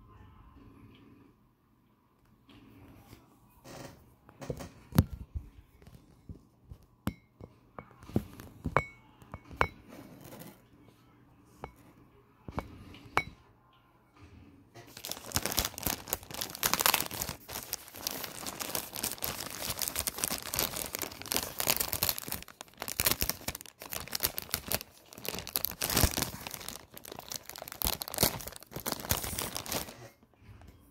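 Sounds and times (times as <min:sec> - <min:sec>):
plastic envelope crinkling: 0:14.9 - 0:30.3.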